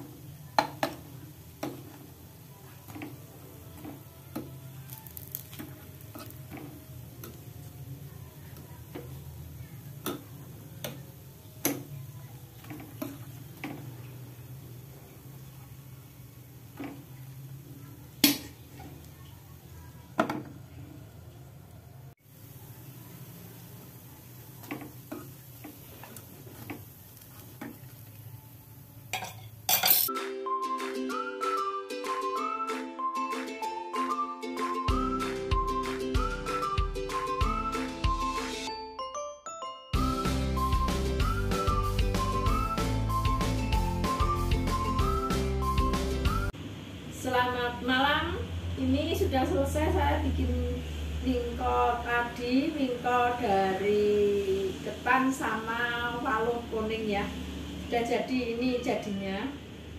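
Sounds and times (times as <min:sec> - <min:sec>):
music: 0:02.8 - 0:07.7, 0:30.1 - 0:46.6.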